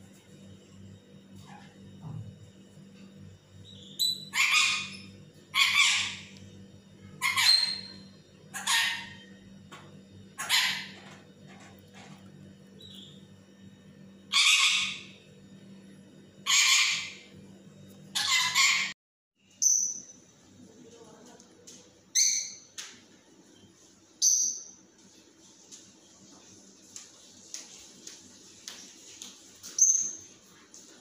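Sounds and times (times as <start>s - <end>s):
faint room hum: 0.0s - 31.0s
parakeet squawking: 3.8s - 6.3s, 7.2s - 9.3s, 10.4s - 11.0s, 14.3s - 15.2s, 16.4s - 17.3s, 18.2s - 18.9s.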